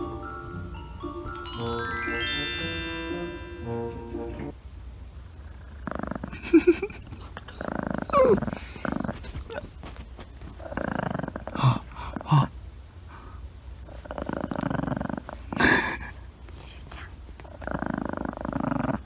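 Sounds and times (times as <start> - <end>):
rising musical chime: 0.0 - 4.5
small dog growling: 5.4 - 12.6, 13.9 - 16.1, 17.4 - 19.0
dog snarling: 5.5 - 12.5, 13.9 - 16.1, 17.4 - 19.0.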